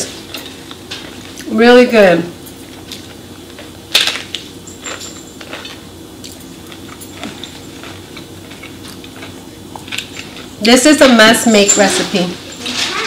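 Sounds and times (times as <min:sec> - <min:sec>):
tostada shell crunching: 0:05.4 - 0:10.6.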